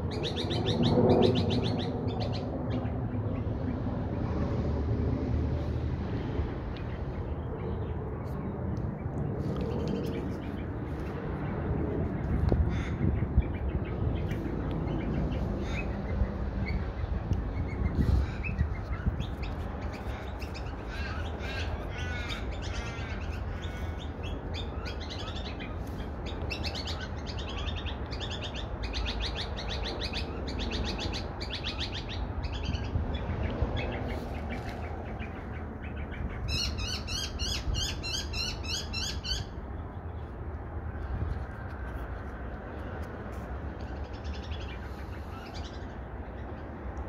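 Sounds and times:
magpies calling: 0.0 - 3.5, 12.6 - 39.6, 43.8 - 46.6.

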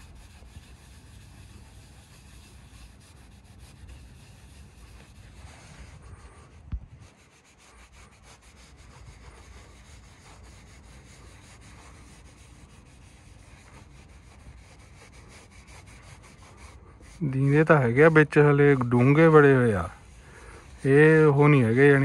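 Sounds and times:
polish rubbing on car paint: 0.0 - 22.0.

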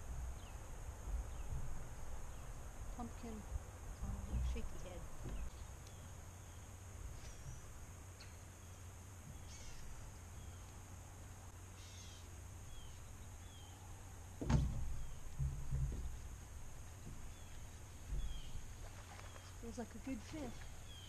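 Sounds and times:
small birds chirping: 0.0 - 21.0
knock on wooden dock: 14.4 - 16.3
dull thumps: 14.4 - 19.2.

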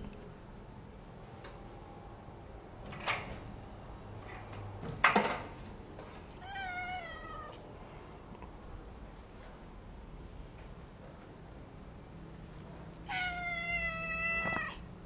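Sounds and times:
cat meowing: 6.4 - 7.6, 13.0 - 14.8.

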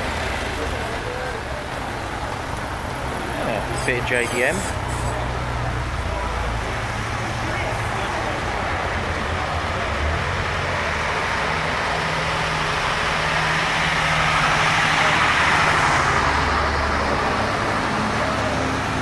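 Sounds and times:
car engine following: 0.0 - 19.0.

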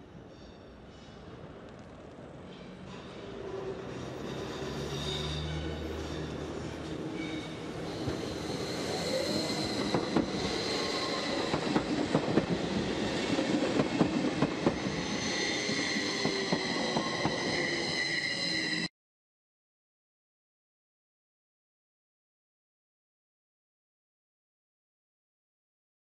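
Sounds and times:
train wheels squealing: 0.0 - 1.4, 2.4 - 18.9.

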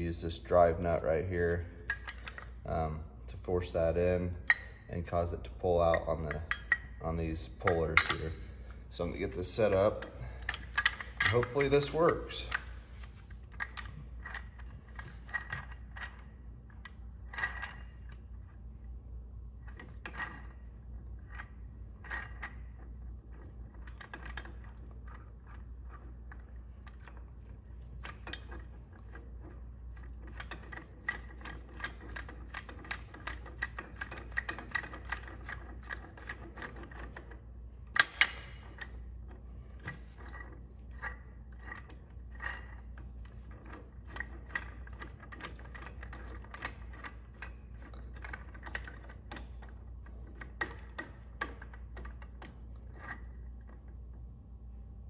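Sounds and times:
small metallic clicks: 21.2 - 54.0
sharp metal clank: 38.0 - 38.6.

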